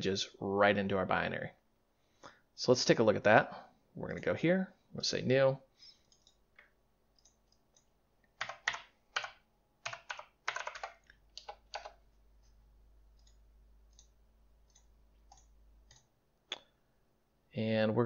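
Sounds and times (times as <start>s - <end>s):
typing on computer keyboard: 6.1s - 6.4s, 7.1s - 12.0s, 13.1s - 16.1s.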